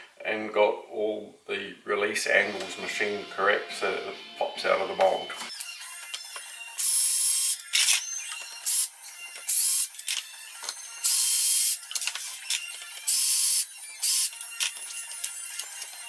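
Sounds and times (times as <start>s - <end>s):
cordless drill whirring: 5.5s - 16.0s.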